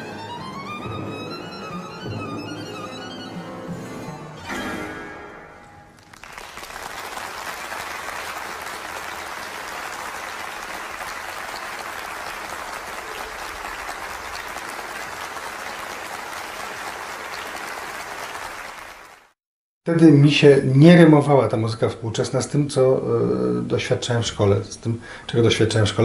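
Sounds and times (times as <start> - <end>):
audience applause: 6.0 - 19.4.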